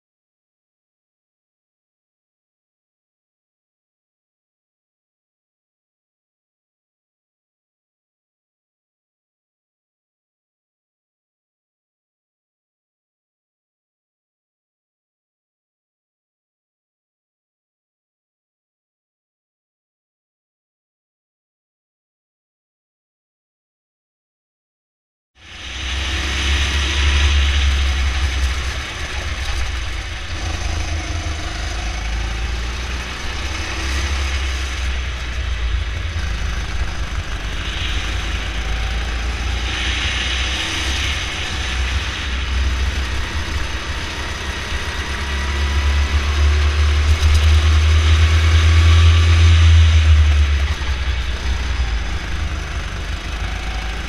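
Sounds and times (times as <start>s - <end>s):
go-kart engine running: 25.4s - 54.0s.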